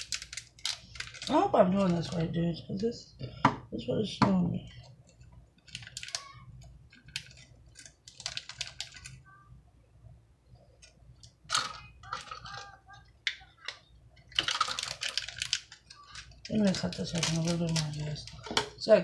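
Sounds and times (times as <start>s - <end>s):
plastic packaging rustling: 0.0s - 2.6s, 5.6s - 9.3s, 10.8s - 18.9s.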